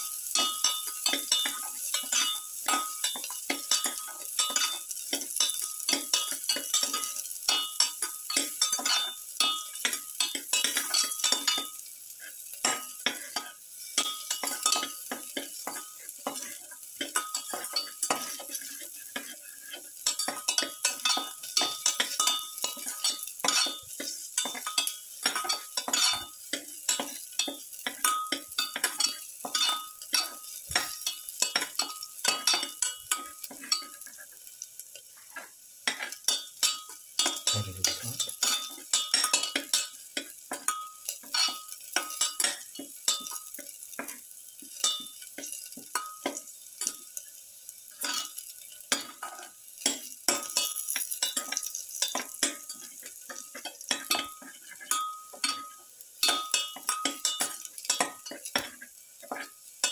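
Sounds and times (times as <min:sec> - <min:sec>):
garlic sizzling in hot oil: 0:00.0 - 0:59.9
spatula scraping metal pan: 0:00.4 - 0:44.2.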